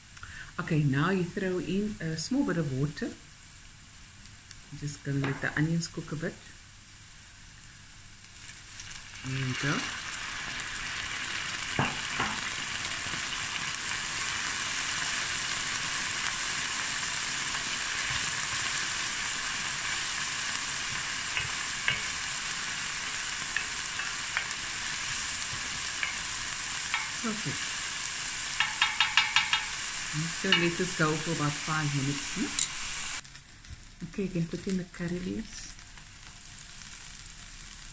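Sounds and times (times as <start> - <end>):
onions sizzling in oil: 1.0 - 37.9.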